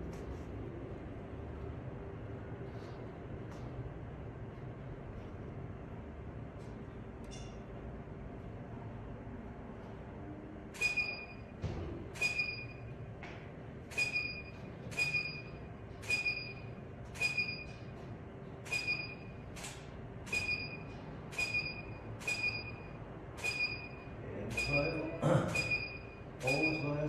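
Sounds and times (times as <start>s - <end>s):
short high flash beep: 10.8s - 11.4s, 12.2s - 12.8s, 13.9s - 17.8s, 18.7s - 19.4s, 20.3s - 27.0s.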